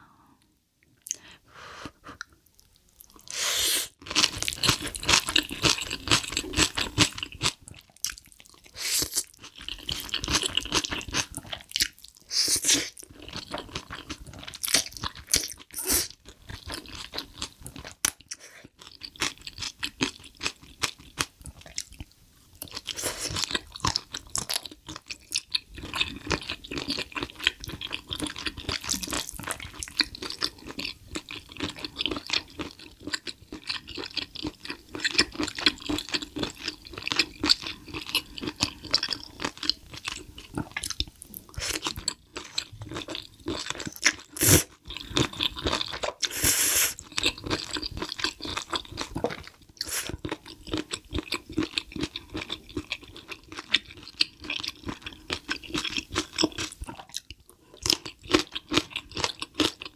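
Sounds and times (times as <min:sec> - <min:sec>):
chewing and slurping: 0:22.6 - 0:59.9.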